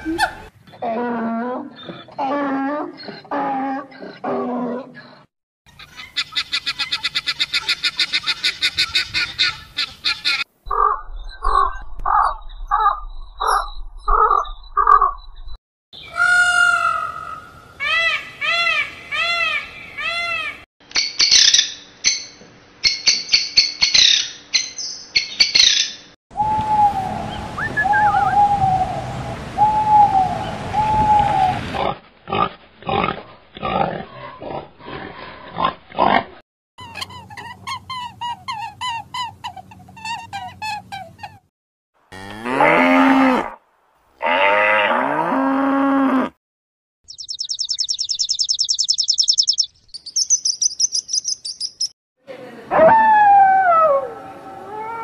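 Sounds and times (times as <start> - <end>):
guineafowl chattering: 5.7 - 15.2
rising and falling bird calls: 5.8 - 20.6, 23.9 - 31.8, 47.1 - 51.9
evenly spaced animal calls: 47.1 - 51.9.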